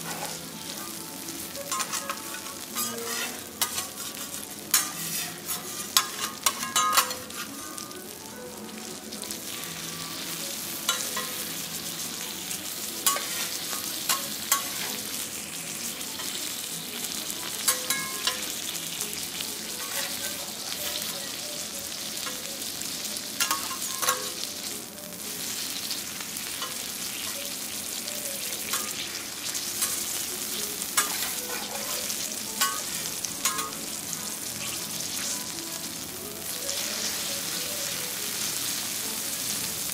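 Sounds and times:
food sizzling on a griddle: 0.0 - 39.9
metal spatulas clicking on hot plate: 1.7 - 7.5, 10.9 - 11.4, 13.0 - 15.0, 17.5 - 18.6, 19.8 - 21.1, 23.4 - 24.5, 26.6 - 27.5, 28.6 - 33.8.

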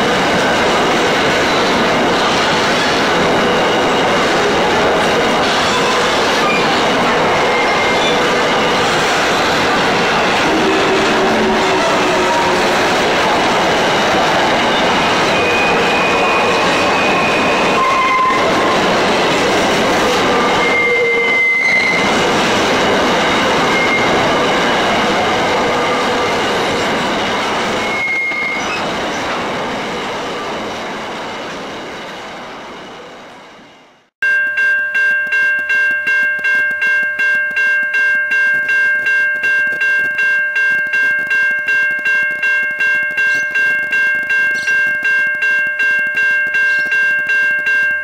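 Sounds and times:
wheels rumbling on rail: 0.0 - 34.1
high-pitched wheel squeals: 5.5 - 9.5, 14.6 - 18.9, 20.1 - 22.1, 23.3 - 24.2, 27.8 - 28.9
level crossing warning bell: 34.2 - 48.0.

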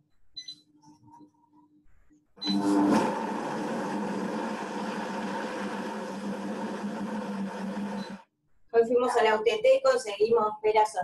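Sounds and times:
blender running: 2.4 - 8.2.

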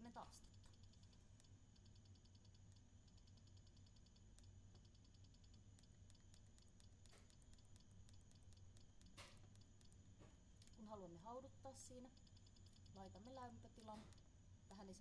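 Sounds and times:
faint low hum: 0.0 - 15.0
keypad button clicks: 12.0 - 14.2.

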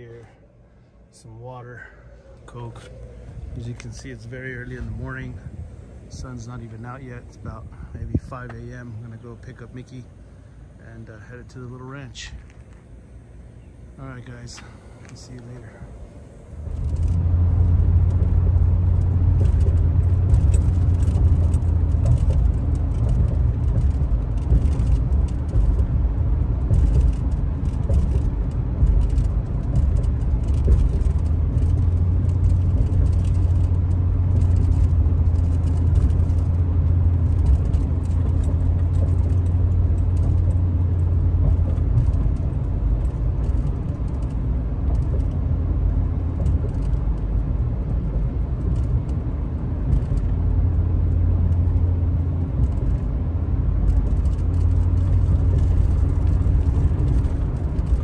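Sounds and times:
engine and road rumble: 0.0 - 58.0
faint rattles: 1.8 - 58.0.

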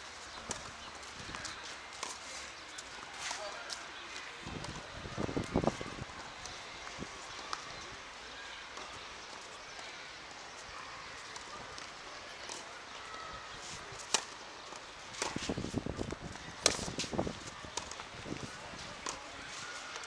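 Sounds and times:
racket striking tennis ball: 16.6 - 17.2.

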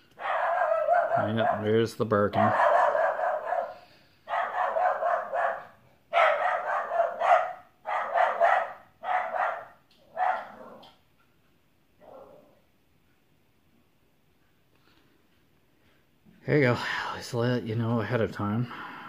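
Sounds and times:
dog barking: 0.2 - 10.9, 12.0 - 12.6.

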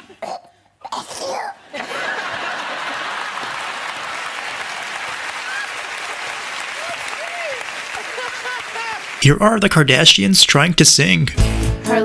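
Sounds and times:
audience laughter: 1.7 - 4.5, 7.8 - 9.2
audience applauding: 1.8 - 10.0.

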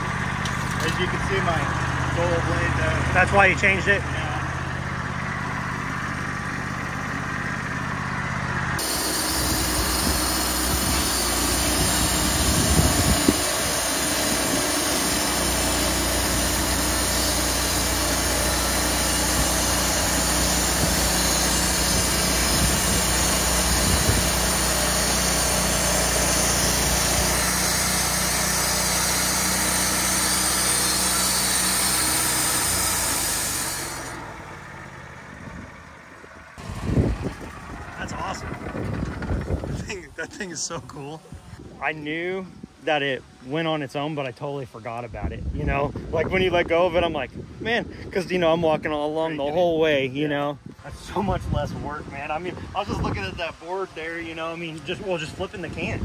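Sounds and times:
sawmill engine running: 0.0 - 44.8, 48.4 - 56.0
band saw blade cutting wood: 8.8 - 34.7.

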